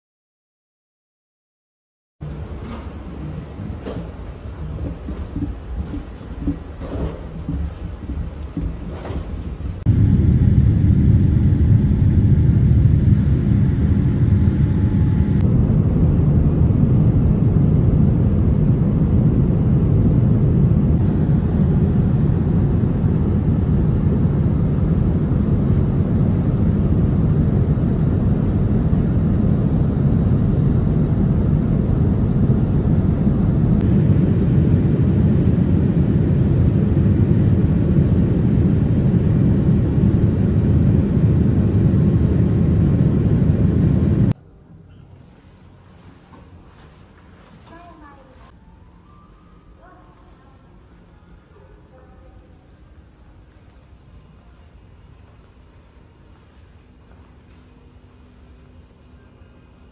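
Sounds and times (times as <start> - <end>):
rushing air in cabin: 2.2 - 44.4
jet engines roaring: 9.4 - 44.4.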